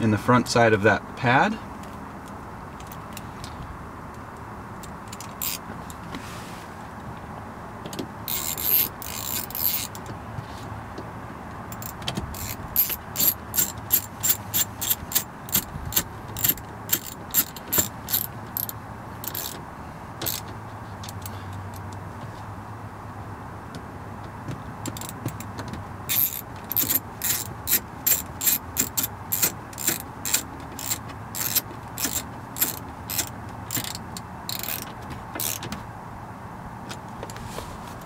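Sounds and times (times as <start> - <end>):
handling rattle: 7.8 - 10.2, 11.7 - 19.6, 24.8 - 35.9
screwdriver clicks: 26.1 - 35.6.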